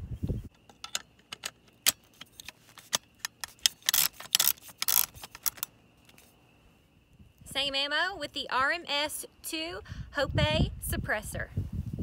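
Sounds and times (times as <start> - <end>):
sharp metallic ratchet clicks: 2.8 - 5.7.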